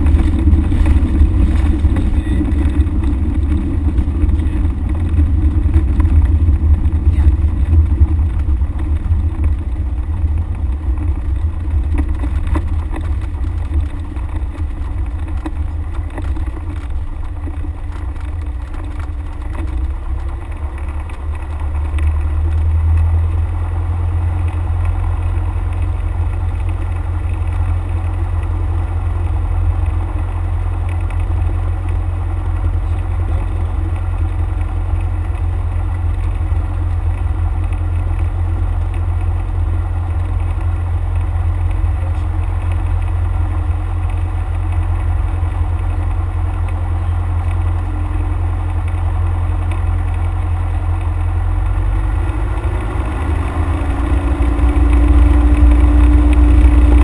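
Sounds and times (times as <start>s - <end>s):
propeller plane engine droning: 0.0s - 57.0s.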